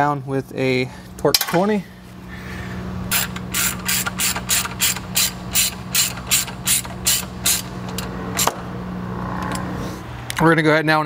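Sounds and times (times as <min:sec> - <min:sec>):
ratchet pawl clicks: 0:03.1 - 0:08.1.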